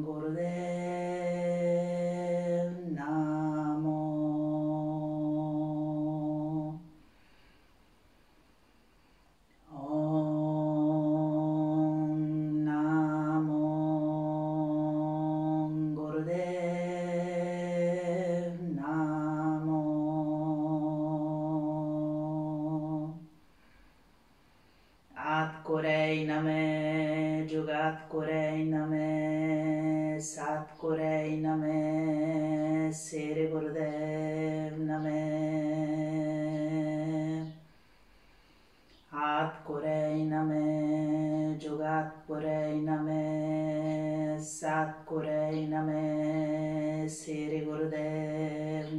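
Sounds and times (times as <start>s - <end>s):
quick breath: 7.0s - 9.4s, 37.6s - 39.1s.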